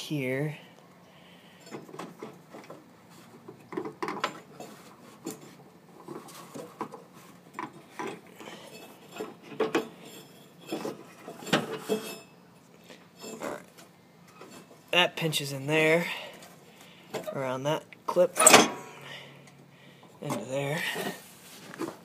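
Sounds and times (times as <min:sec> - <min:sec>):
belt and metal clanking: 0:01.5 - 0:12.4, 0:13.1 - 0:14.9, 0:18.2 - 0:19.3.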